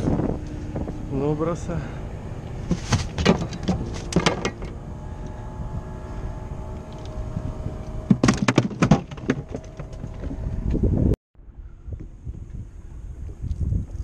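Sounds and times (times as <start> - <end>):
steady low hum: 0.0 - 14.0
gear knocking in a fibreglass boat: 2.6 - 4.8, 8.1 - 10.8.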